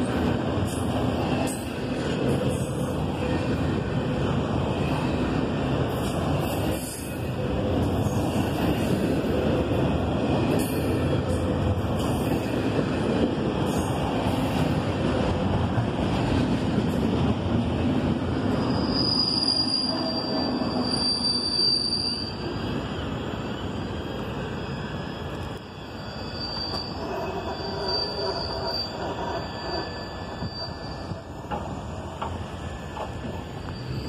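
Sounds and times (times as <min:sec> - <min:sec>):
train wheels rumbling on rails: 0:00.0 - 0:34.0
high-pitched wheel squeal: 0:18.5 - 0:22.5, 0:25.1 - 0:31.6, 0:33.2 - 0:34.0.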